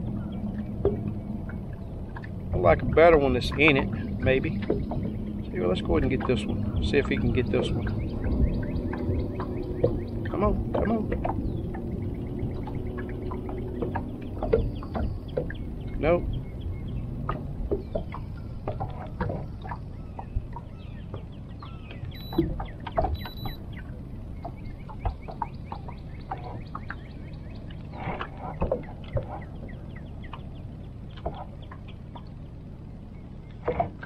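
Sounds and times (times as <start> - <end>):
steady low rumble: 0.0 - 34.0
high beeps: 22.2 - 22.4, 23.2 - 23.6.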